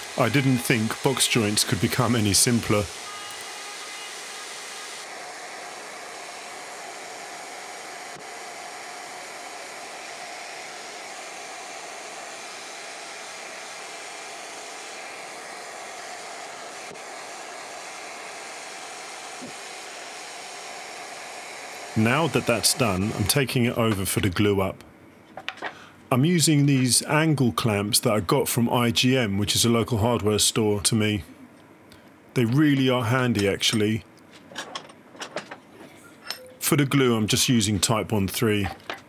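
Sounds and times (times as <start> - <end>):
router motor whirring: 0.0 - 23.4.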